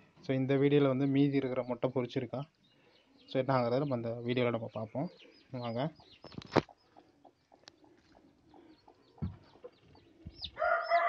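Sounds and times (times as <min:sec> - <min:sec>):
chicks peeping: 0:00.0 - 0:11.0
sharp knocks: 0:09.2 - 0:09.5.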